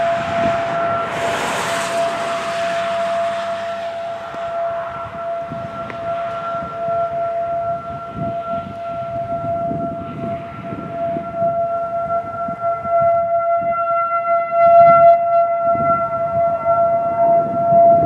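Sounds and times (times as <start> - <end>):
electromechanical siren steady tone: 0.0 - 18.0.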